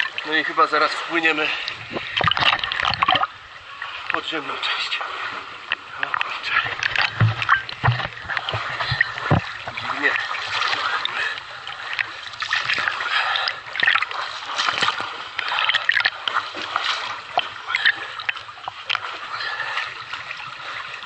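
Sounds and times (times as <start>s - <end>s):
water splashing from swimming: 0.0s - 21.0s.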